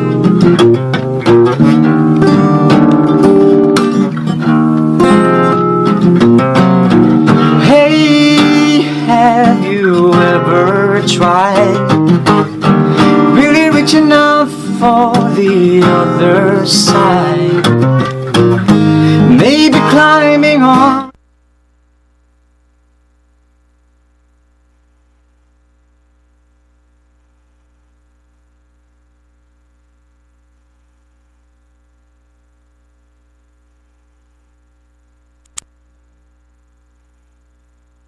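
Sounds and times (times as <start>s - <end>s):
fingerpicked acoustic guitar: 0.0s - 21.2s
man singing: 7.4s - 12.0s, 13.0s - 17.9s, 19.1s - 21.2s.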